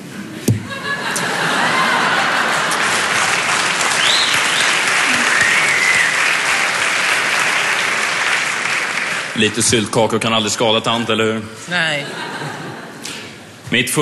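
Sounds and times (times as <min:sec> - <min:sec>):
audience applauding: 0:01.2 - 0:09.7.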